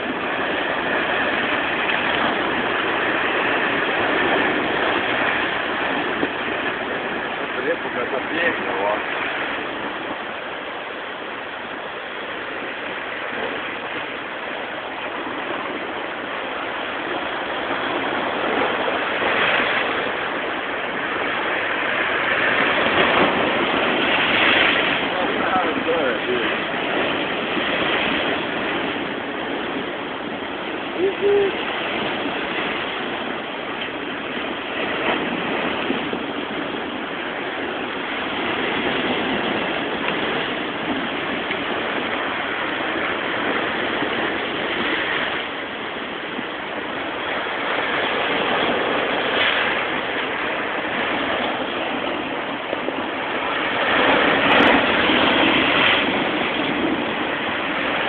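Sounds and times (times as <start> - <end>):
waves crashing on rocky shore: 0.0 - 58.0.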